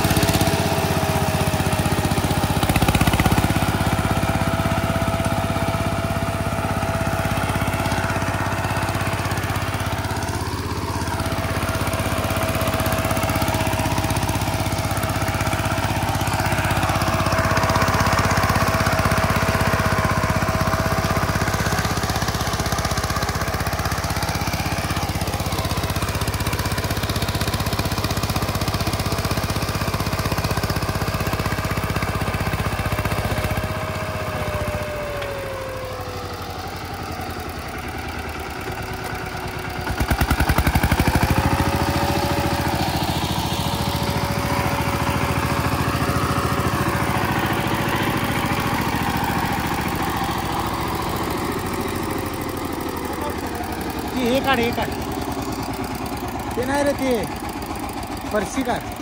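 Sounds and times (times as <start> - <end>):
diesel tiller engine running: 0.0 - 59.0.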